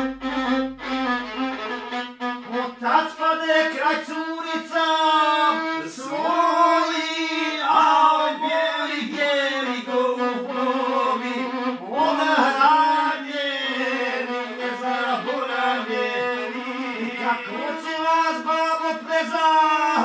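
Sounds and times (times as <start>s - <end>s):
violin sustained notes: 0.0s - 2.9s
man singing folk song: 2.8s - 20.0s.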